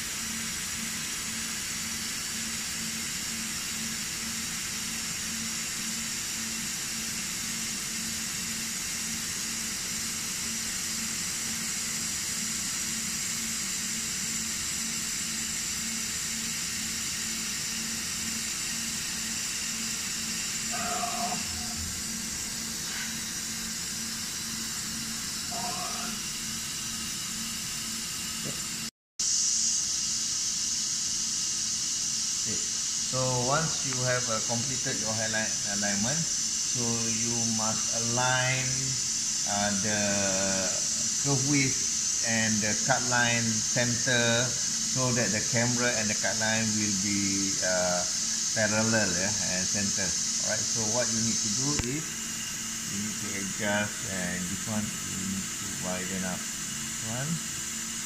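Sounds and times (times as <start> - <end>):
dicing saw blade hissing: 0.0 - 58.0
low pulsing hum: 6.7 - 28.9.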